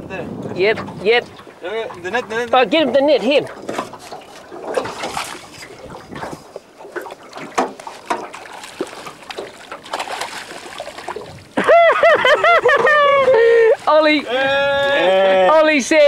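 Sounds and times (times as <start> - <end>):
water sloshing: 0.0 - 16.0
fish splashing at the surface: 3.5 - 11.9.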